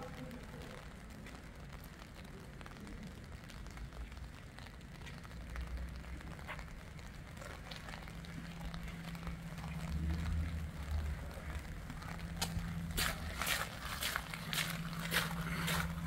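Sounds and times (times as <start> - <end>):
light rain on wet paving: 0.0 - 16.0
low rumble: 8.3 - 16.0
footsteps: 11.9 - 16.0.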